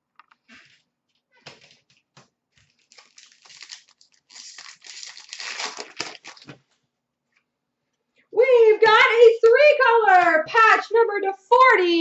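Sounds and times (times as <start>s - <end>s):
foil wrappers crinkling: 2.5s - 6.6s.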